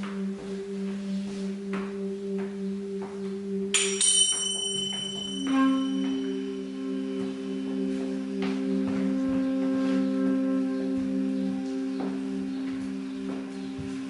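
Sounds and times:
low sustained pulsing tones: 0.0s - 14.0s
bright ringing metallic strike: 3.7s - 8.5s
ringing note: 3.7s - 12.1s.

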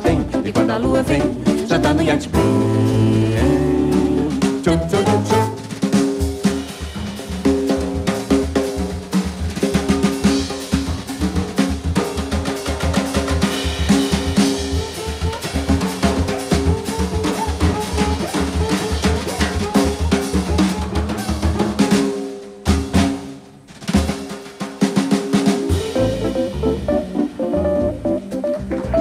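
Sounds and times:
band holding low notes: 0.0s - 5.8s, 25.7s - 29.0s
drum kit groove: 0.0s - 29.0s.

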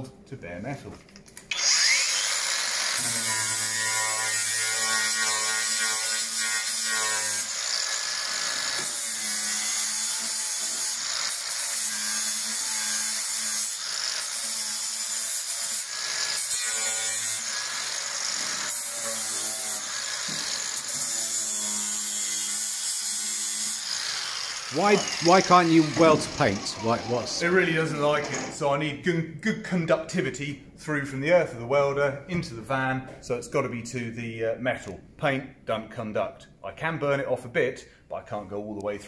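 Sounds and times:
angle grinder grinding metal: 1.5s - 28.6s.

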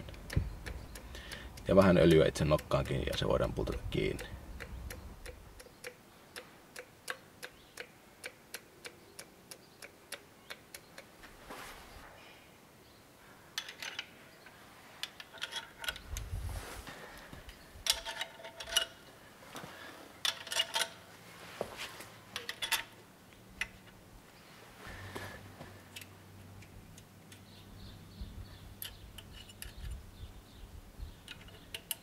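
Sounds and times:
metal parts clinking: 13.6s - 14.1s, 15.0s - 16.2s, 17.8s - 19.1s, 20.2s - 21.1s, 22.4s - 23.0s, 31.2s - 32.0s.

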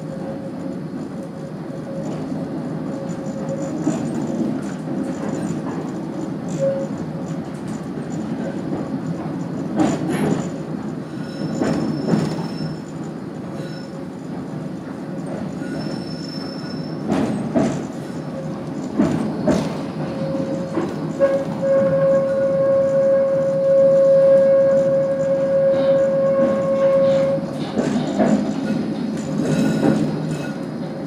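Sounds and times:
tram rumbling on rails: 0.0s - 31.0s
high wheel squeal: 10.3s - 30.7s
wheels knocking on track: 17.0s - 22.1s.

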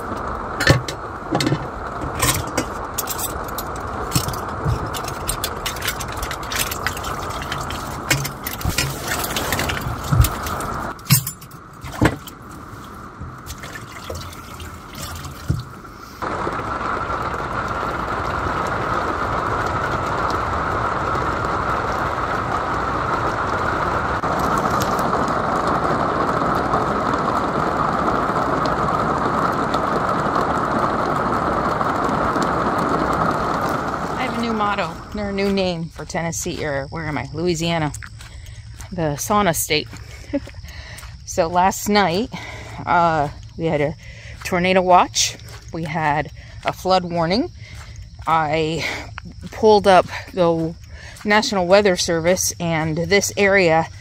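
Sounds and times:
heavy rain on roof: 0.0s - 37.2s, 53.1s - 54.0s.

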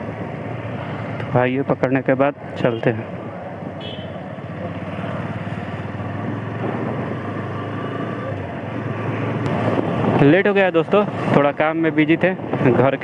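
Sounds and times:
road and wind noise: 0.0s - 13.0s
motorcycle engine accelerating: 4.3s - 11.4s.

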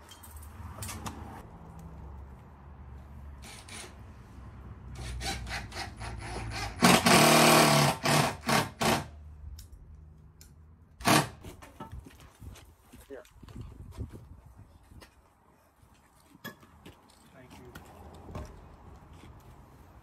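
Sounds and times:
power drill driving screws: 5.0s - 9.1s, 11.0s - 11.4s.

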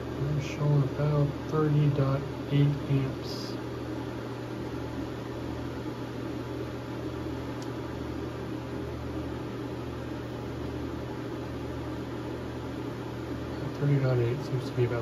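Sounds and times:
inverter electrical hum: 0.0s - 15.0s.

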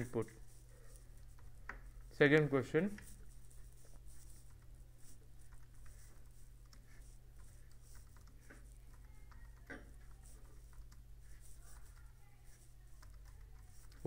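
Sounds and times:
computer keys typing: 0.9s - 2.1s, 2.7s - 14.0s.

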